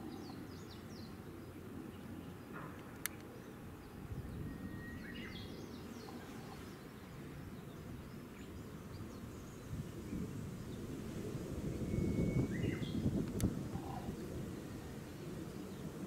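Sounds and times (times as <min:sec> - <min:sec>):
faint bird chirps: 0:00.0 - 0:10.8, 0:11.6 - 0:13.1
songbird singing: 0:00.0 - 0:16.0.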